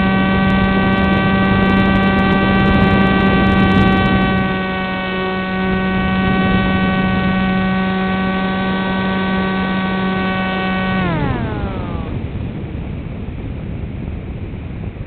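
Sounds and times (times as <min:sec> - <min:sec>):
electric motor propeller whine: 0:00.0 - 0:13.6.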